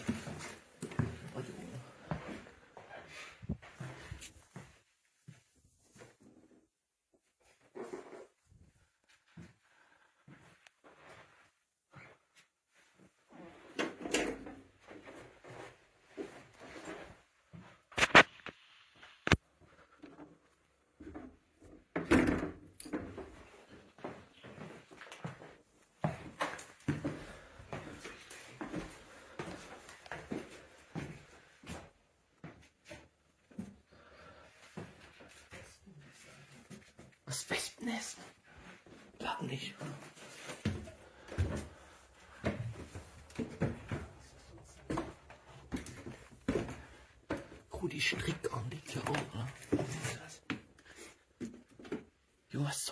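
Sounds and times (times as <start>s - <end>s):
footsteps on wooden stairs: 0.0s - 6.1s, 22.9s - 37.2s, 38.6s - 52.3s.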